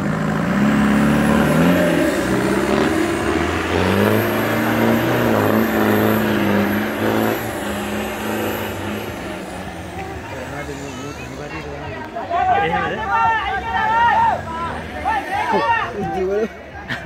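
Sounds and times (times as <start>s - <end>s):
off-road vehicle engine revving: 0.0s - 17.0s.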